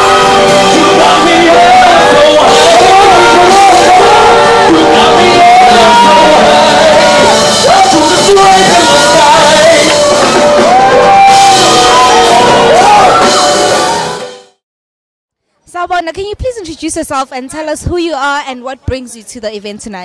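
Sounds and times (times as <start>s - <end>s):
person singing long held notes: 0.0s - 10.4s
music accompaniment: 0.0s - 14.6s.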